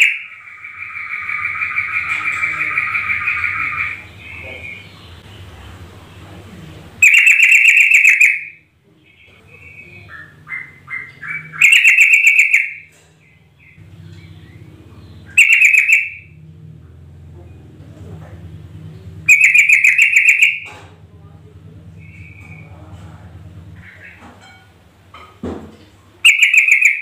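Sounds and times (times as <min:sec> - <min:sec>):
bird bubbling chatter: 0:00.0 - 0:16.4, 0:19.0 - 0:20.8, 0:26.2 - 0:27.0
low steady hum: 0:00.0 - 0:26.4.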